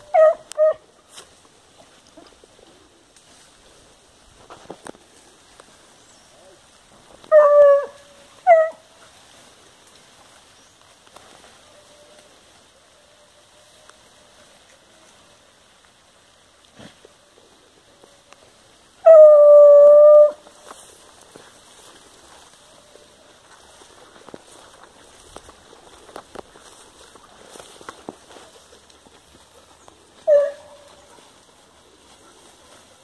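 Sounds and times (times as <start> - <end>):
dog howling: 7.2 - 8.8, 19.0 - 20.4.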